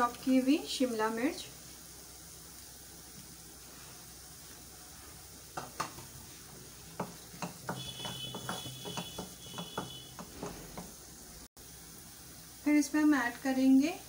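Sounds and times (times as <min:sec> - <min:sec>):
faint sizzle: 0:00.0 - 0:14.0
spatula scraping pan: 0:05.6 - 0:11.0.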